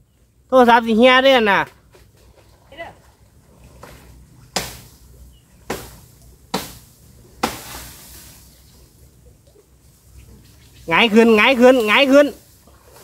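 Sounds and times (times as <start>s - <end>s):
brush rustling: 1.8s - 13.0s
blade chopping brush: 7.4s - 8.4s.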